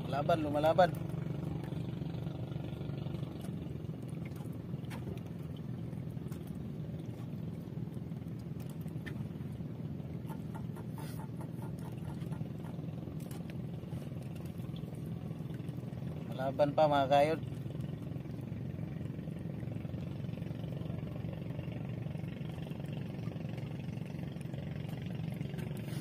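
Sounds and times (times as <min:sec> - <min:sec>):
small engine droning: 0:00.0 - 0:26.0
fishing line clicks and scrapes: 0:10.2 - 0:14.6, 0:25.6 - 0:26.0.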